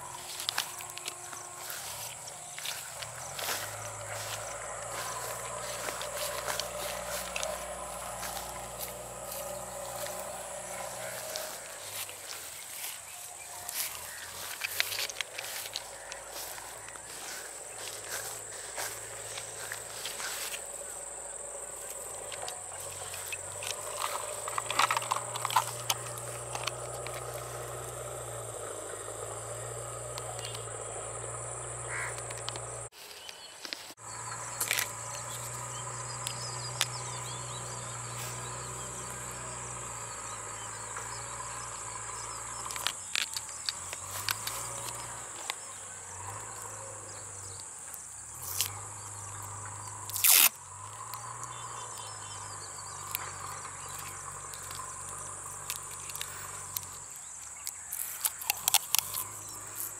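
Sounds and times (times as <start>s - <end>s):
high-pitched insect drone: 0.0s - 33.0s, 34.0s - 59.9s
objects clicking and rustling: 22.2s - 27.7s.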